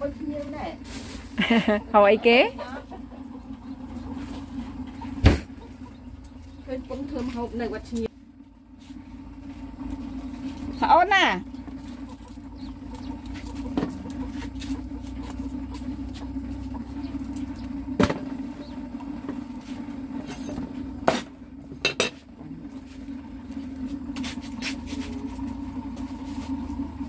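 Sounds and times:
steady low hum: 0.0 - 27.0
cookware and utensils clinking: 21.8 - 22.2.

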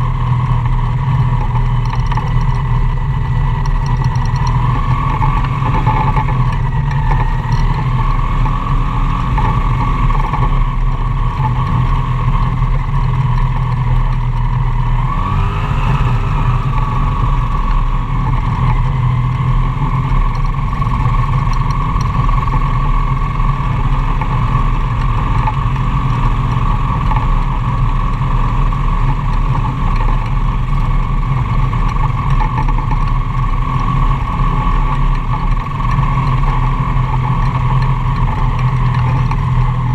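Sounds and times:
gyroplane engine and propeller: 0.0 - 39.9.

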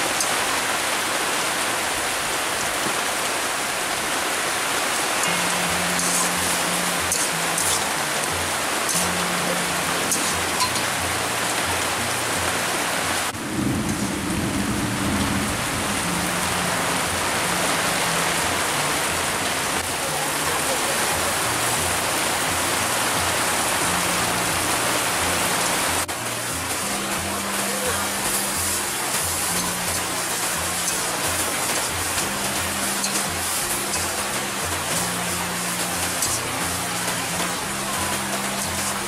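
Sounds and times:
heavy rain falling: 0.0 - 39.0
thunder rumble: 13.4 - 18.0.

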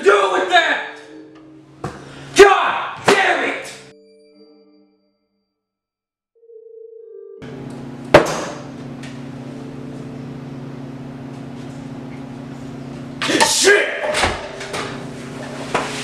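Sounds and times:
steady low hum: 7.4 - 13.7.

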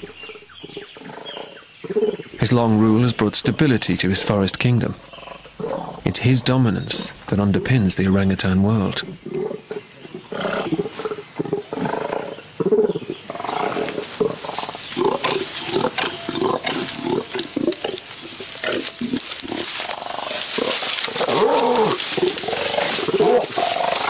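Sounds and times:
orangutan deep calls: 4.9 - 7.3, 8.9 - 24.0.

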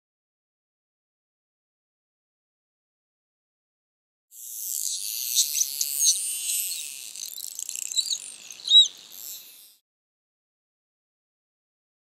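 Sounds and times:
dolphins whistling: 5.4 - 9.2.

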